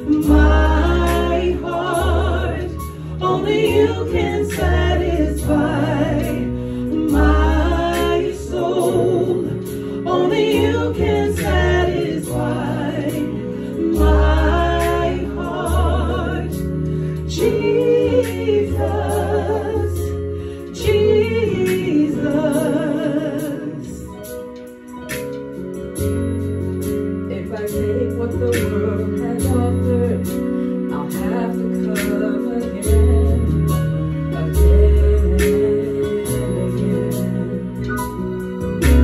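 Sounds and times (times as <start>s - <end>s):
backing singers: 0.0s - 24.1s
woman singing lead: 0.0s - 24.3s, 27.3s - 39.0s
synthesizer keyboard chords: 0.0s - 39.0s.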